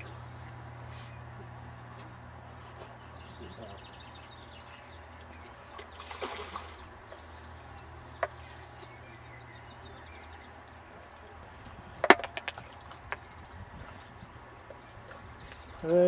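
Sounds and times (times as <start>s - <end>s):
fish splashing at water surface: 5.8s - 6.9s.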